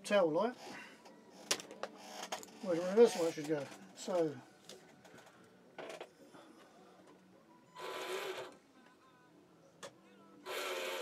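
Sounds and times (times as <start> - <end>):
small electric motor whirring: 10.5 - 11.0.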